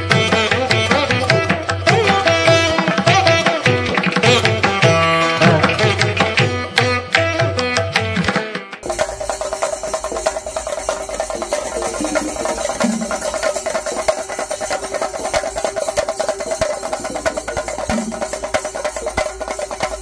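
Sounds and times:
percussion ensemble drumming: 0.0s - 20.0s
tuneful music: 0.0s - 20.0s
steady held tone: 8.8s - 20.0s.

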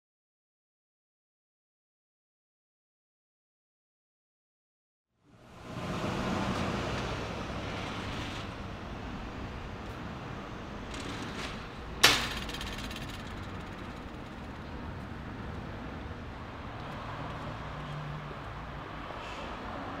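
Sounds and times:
steady background rumble: 8.5s - 16.8s
steel mesh gate clanging shut: 10.9s - 14.0s.

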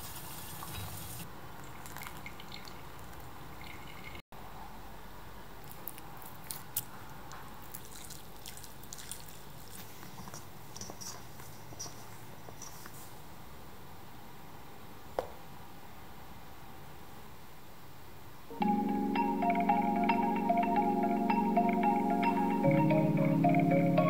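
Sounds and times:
liquid dripping in metal bowl: 1.6s - 4.2s, 7.7s - 9.8s.

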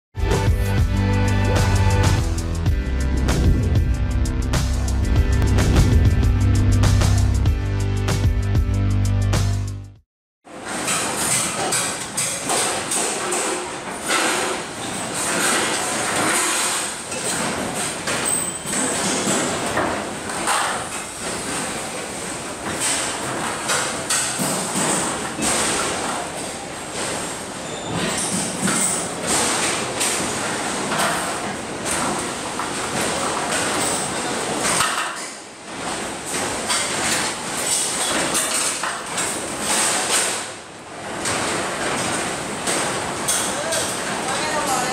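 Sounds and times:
construction site noise: 0.2s - 7.5s, 10.5s - 44.9s.

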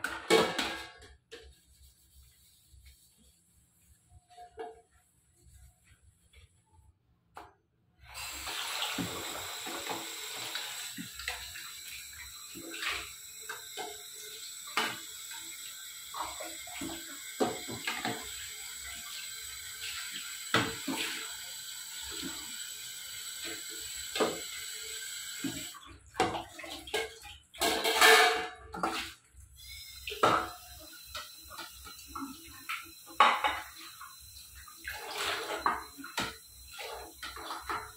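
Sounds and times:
tap water running onto plate: 8.2s - 37.9s
steel pots clattering: 27.0s - 28.9s.

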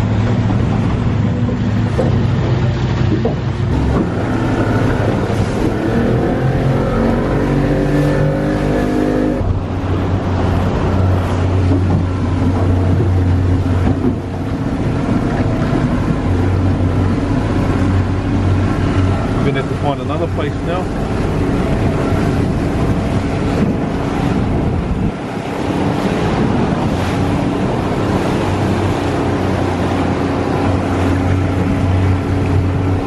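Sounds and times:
wind noise: 0.0s - 19.9s, 20.5s - 33.0s
boat engine running: 0.0s - 33.0s
water noise: 0.0s - 33.0s.

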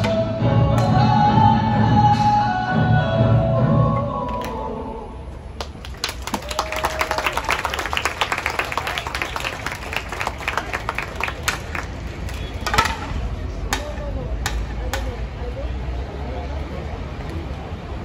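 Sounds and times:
audience clapping: 5.6s - 12.5s.

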